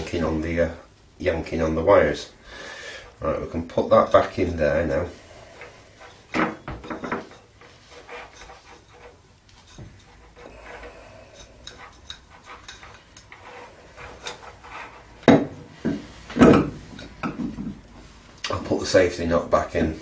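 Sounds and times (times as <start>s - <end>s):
ceramic base knocking on wood: 15.3s - 17.8s.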